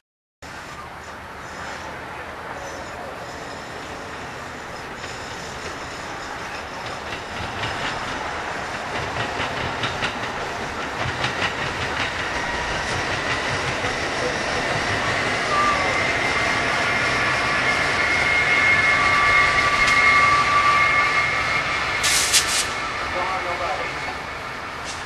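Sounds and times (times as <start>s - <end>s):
train wheels clicking over rail joints: 3.3s - 15.4s, 22.0s - 22.8s
steady high whine: 10.1s - 25.0s.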